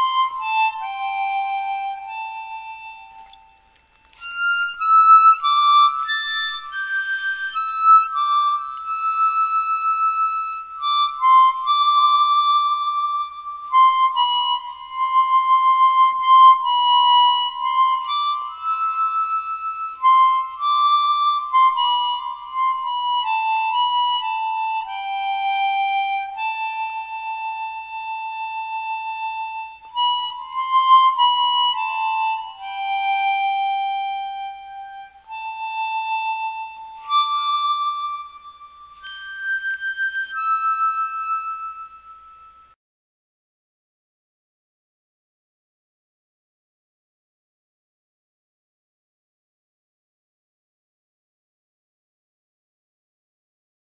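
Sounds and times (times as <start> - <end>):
solo harmonica melody: 0.0 - 42.8.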